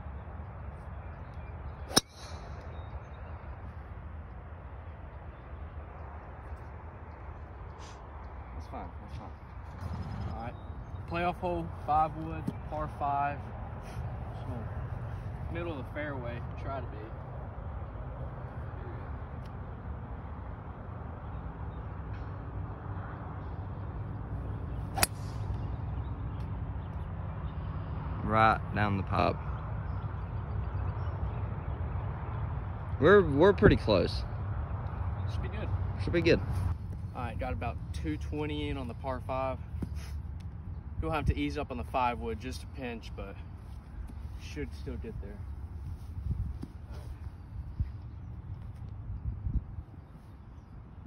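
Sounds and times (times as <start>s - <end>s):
golf club striking ball: 1.9s - 2.6s, 24.9s - 25.7s.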